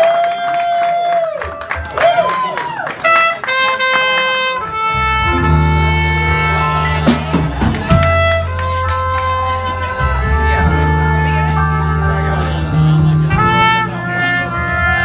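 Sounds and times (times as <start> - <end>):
trumpet melody: 2.9 - 15.0
drum kit: 3.5 - 15.0
electric bass guitar: 3.5 - 15.0.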